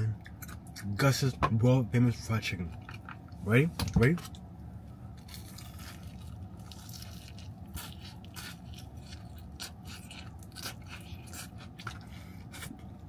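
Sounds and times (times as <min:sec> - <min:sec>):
chewing crunchy fried chicken: 0:05.1 - 0:13.0.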